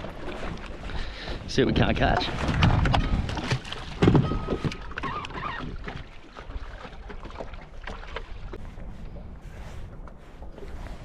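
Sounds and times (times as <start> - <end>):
water lapping on hull: 0.0 - 11.0
wind: 0.0 - 11.0
trolling motor clunk: 1.7 - 6.0.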